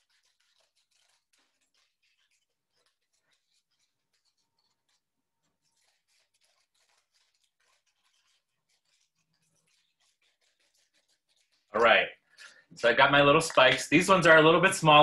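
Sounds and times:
faint scissors snipping paper: 0:00.0 - 0:11.8.

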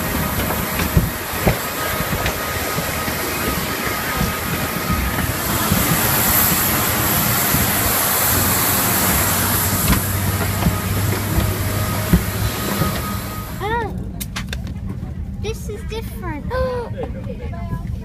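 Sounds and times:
footsteps on metal stairs: 0:00.0 - 0:13.6
jet turbine whine: 0:00.0 - 0:14.2.

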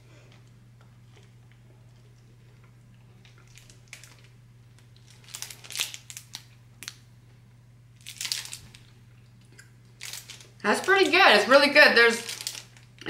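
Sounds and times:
faint low hum: 0:00.0 - 0:13.0
wrapper crinkling: 0:03.2 - 0:07.0, 0:08.0 - 0:08.9, 0:10.0 - 0:13.0.

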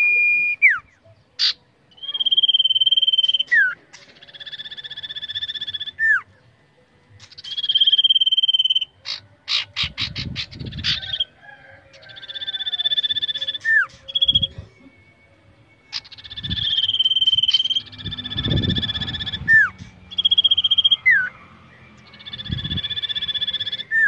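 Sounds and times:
bird singing trilled whistles: 0:00.0 - 0:06.3, 0:07.2 - 0:11.3, 0:12.2 - 0:14.6, 0:15.9 - 0:21.3, 0:22.0 - 0:24.0.

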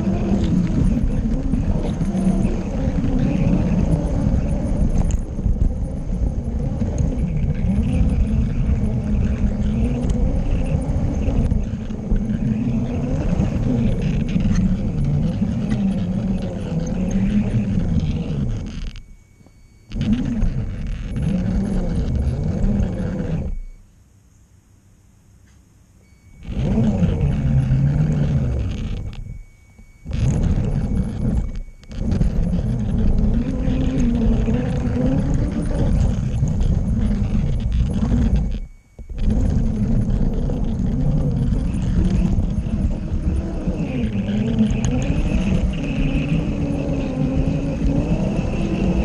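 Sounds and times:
wavering motor hum: 0:00.0 - 0:49.0
toy train wheels rumbling: 0:26.4 - 0:29.4, 0:30.1 - 0:49.0.

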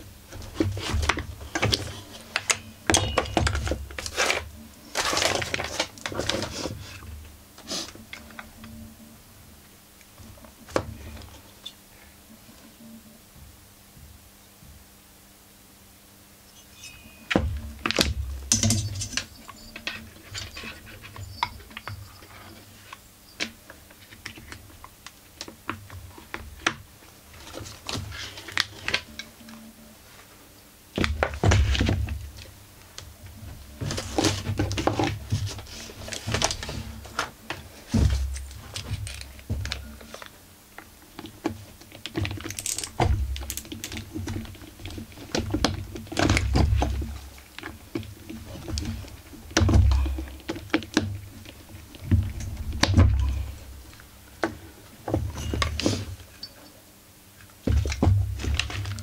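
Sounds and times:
metal parts and tools clattering: 0:01.5 - 0:05.8, 0:18.0 - 0:22.0, 0:42.4 - 0:44.0
heavy thumps: 0:33.3 - 0:40.1, 0:48.4 - 0:56.2.

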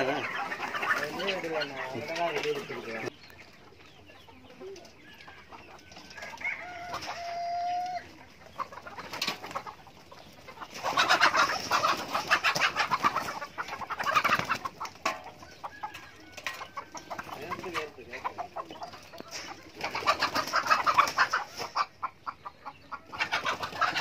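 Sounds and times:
chickens clucking and cackling: 0:00.0 - 0:24.0
rooster crowing: 0:05.4 - 0:08.1.

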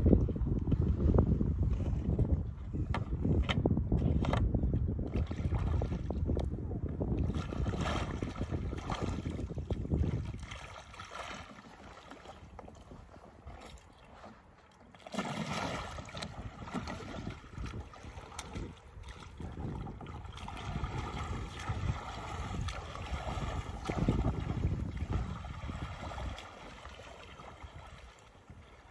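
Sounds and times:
paddle churning water: 0:00.0 - 0:28.9
water splashing around kayak: 0:00.0 - 0:28.9.

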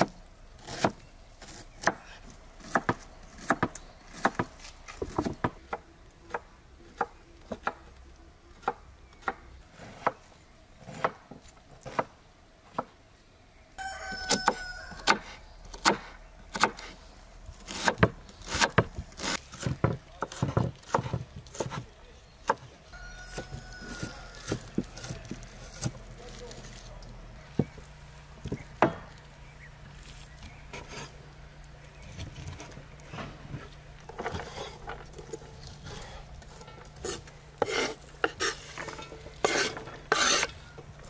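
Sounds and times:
cleaver chopping on wooden board: 0:00.0 - 0:04.5, 0:14.2 - 0:16.9, 0:17.7 - 0:22.7, 0:28.5 - 0:29.1
rooster crowing: 0:13.8 - 0:15.4, 0:22.9 - 0:24.9.

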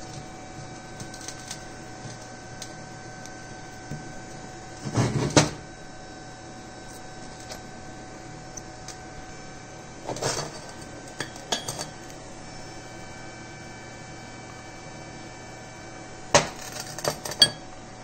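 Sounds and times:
faint steady hum: 0:00.0 - 0:18.0
metal parts knocking and clinking: 0:16.6 - 0:17.6.

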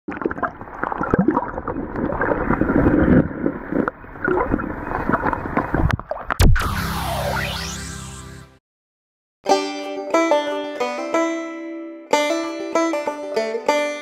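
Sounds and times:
underwater river water sloshing: 0:00.1 - 0:06.4
loud splash: 0:00.4 - 0:08.2.

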